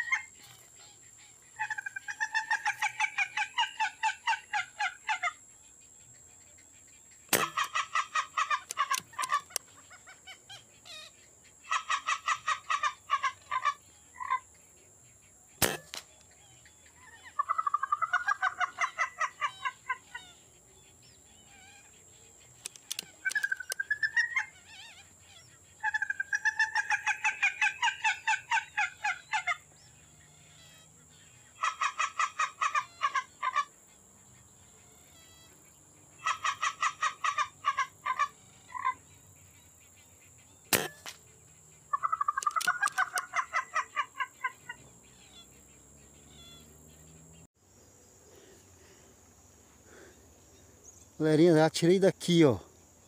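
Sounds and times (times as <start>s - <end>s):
birds calling in pulsed notes: 0.0s - 53.0s
sharp click: 7.3s - 7.7s, 15.6s - 16.2s, 22.6s - 23.8s, 40.7s - 41.2s, 42.4s - 43.3s.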